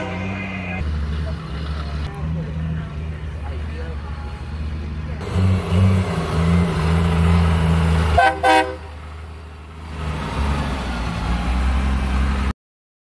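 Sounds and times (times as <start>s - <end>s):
horn toots: 0.0s - 0.8s, 8.1s - 9.0s.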